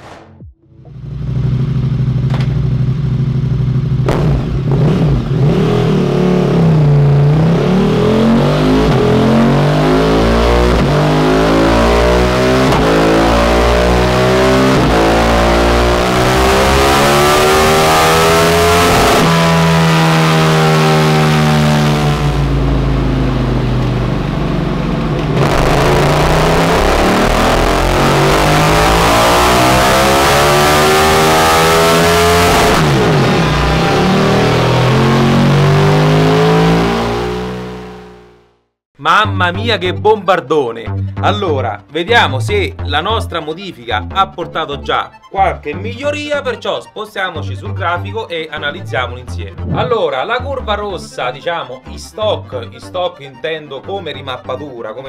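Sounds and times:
motorcycle engine revving: 0.0s - 38.7s.

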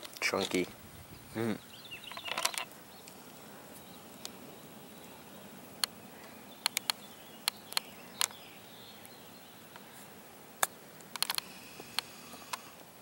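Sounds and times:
outdoor hiss: 0.0s - 13.0s
faint sharp ticks: 10.6s - 12.9s.

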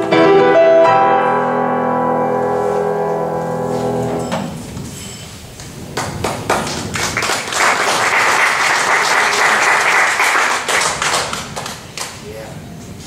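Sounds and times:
piano notes: 0.0s - 7.2s
audience applauding: 5.9s - 12.2s.

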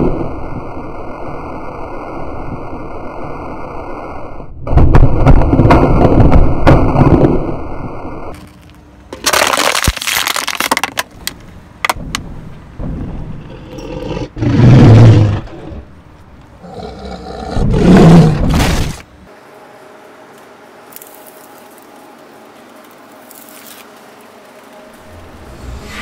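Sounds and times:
plastic bottle crunching under tyre: 8.4s - 12.0s
sharp cracks: 8.4s - 12.3s
dinosaur roar sound effect: 16.6s - 18.6s.

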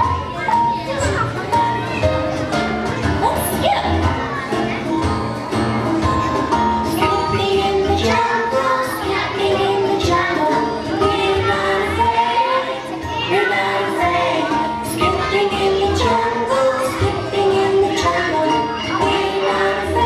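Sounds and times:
instrumental backing track: 0.0s - 20.0s
children singing together: 5.6s - 20.0s.

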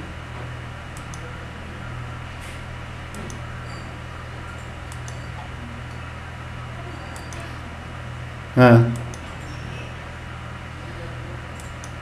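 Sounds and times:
steady low hum: 0.0s - 12.0s
faint short clicks: 11.6s - 12.0s.

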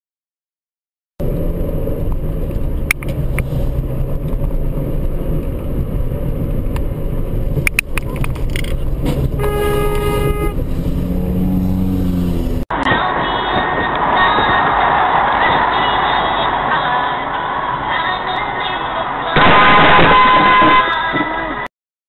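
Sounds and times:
car road and engine noise: 1.2s - 21.7s
car horn: 9.3s - 12.5s, 19.3s - 21.5s.

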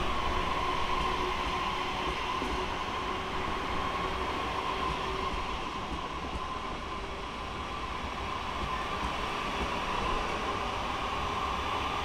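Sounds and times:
high train whine: 0.0s - 12.0s
train rolling rumble: 0.0s - 12.0s.

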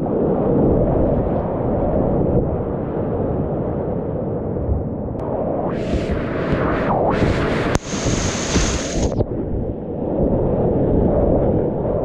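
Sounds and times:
splash hiss: 7.2s - 9.2s
sharp click: 7.6s - 9.2s.

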